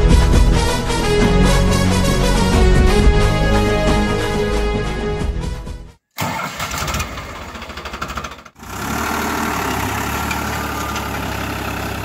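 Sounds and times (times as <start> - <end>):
diesel tractor engine running: 6.2 - 12.0.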